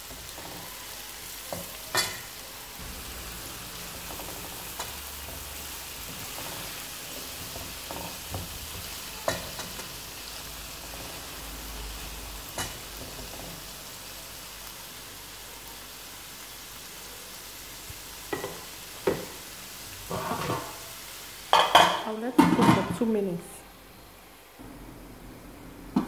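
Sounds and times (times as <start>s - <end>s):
vegetables sizzling in oil: 0.0s - 26.0s.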